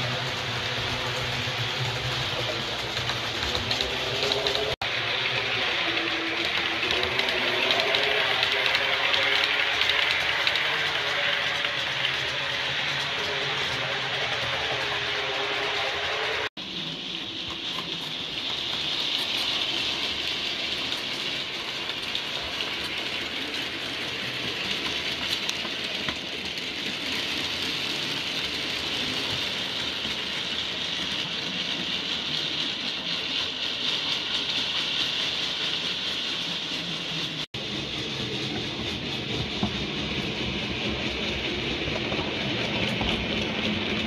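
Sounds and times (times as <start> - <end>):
model train motor whirring: 0.0 - 44.0.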